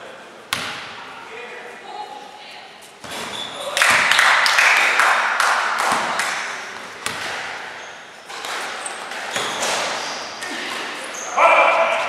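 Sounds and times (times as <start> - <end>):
sneaker squeaks: 2.7 - 4.0, 5.9 - 12.0
basketball bouncing on hard floor: 7.0 - 7.4.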